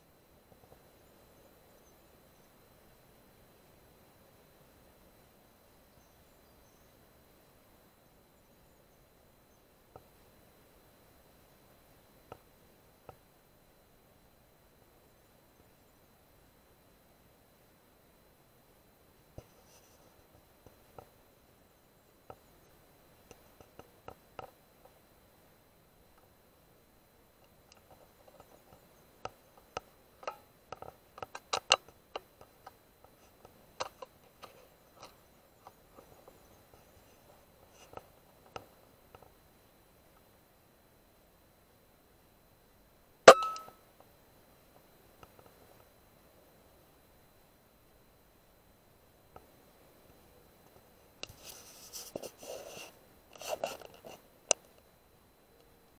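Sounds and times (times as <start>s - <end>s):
rustling and scraping handling noise: 19.4s - 20.2s, 51.2s - 54.2s
sharp click: 43.3s - 43.8s.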